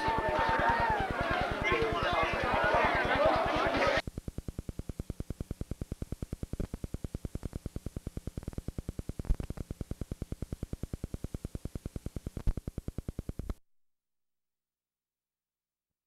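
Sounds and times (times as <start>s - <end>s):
rapid pulsing tape interference: 0.0s - 13.6s.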